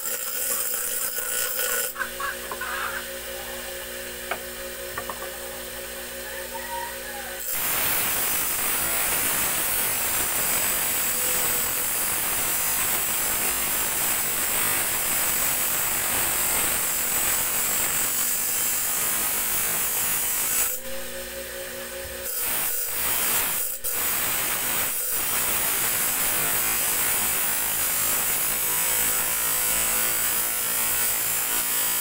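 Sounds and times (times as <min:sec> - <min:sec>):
metal grinding on abrasive disc: 0:00.0 - 0:03.5
grinder motor hum: 0:00.0 - 0:30.2.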